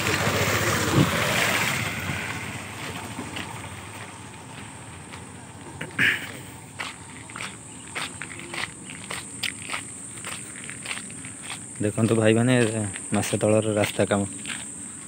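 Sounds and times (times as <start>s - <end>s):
motorcycle passing: 0.0s - 11.6s
footsteps on gritty concrete: 2.3s - 15.0s.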